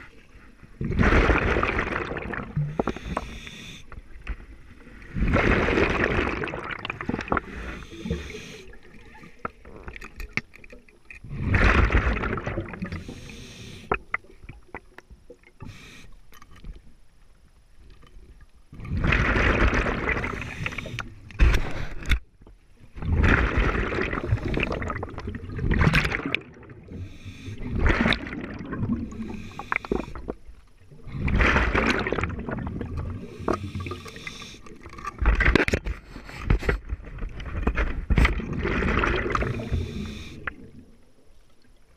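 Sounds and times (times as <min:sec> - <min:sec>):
exhaled bubbles underwater: 0:00.0 - 0:10.3, 0:11.2 - 0:15.8, 0:18.7 - 0:21.3, 0:22.9 - 0:35.9, 0:37.0 - 0:41.3.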